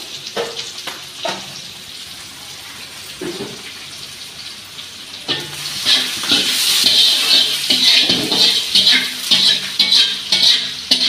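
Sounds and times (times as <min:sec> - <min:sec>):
onions frying sizzle: 0:00.0 - 0:11.0
metal spatula scraping: 0:05.3 - 0:11.0.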